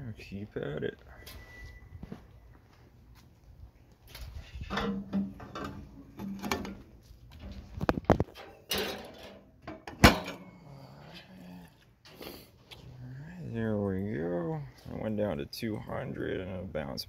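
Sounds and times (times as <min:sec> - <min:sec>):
metal smoker clanks and scrapes: 0:04.2 - 0:10.5.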